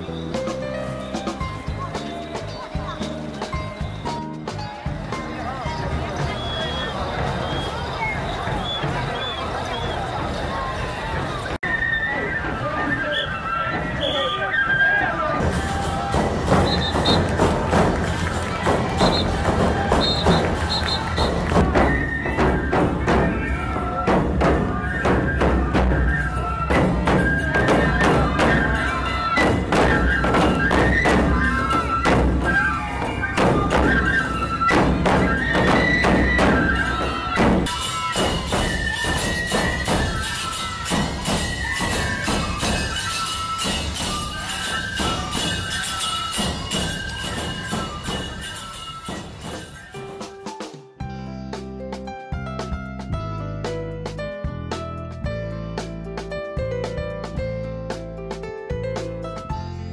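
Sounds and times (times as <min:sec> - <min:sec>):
high flute melody: 0:05.4 - 0:51.0
taiko drums beating: 0:15.4 - 0:50.5.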